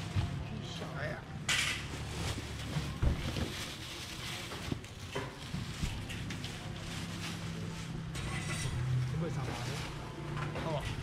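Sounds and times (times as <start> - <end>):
plastic bags rustling: 0.0 - 11.0
baskets being handled: 1.8 - 8.2.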